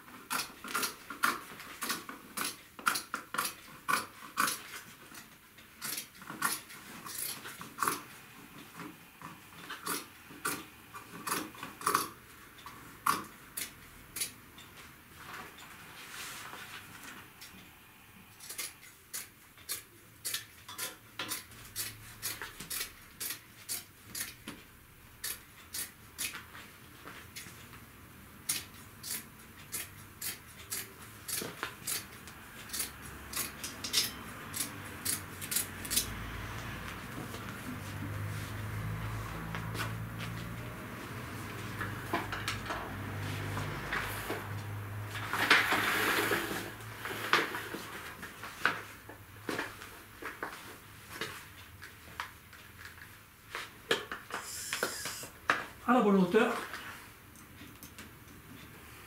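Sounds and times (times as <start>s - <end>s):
scissors snipping heavy fabric: 28.4s - 36.1s.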